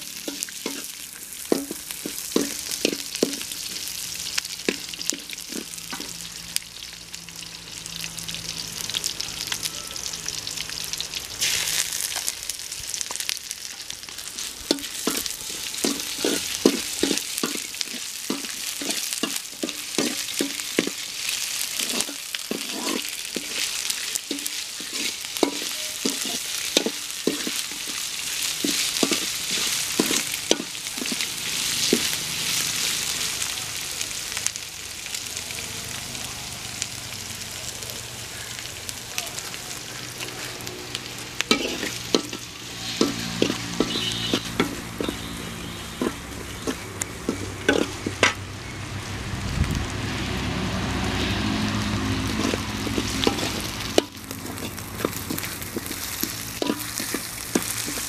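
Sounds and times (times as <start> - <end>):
shallots sizzling in hot oil: 0.0 - 58.0
ladle scraping and knocking pot: 46.0 - 48.4.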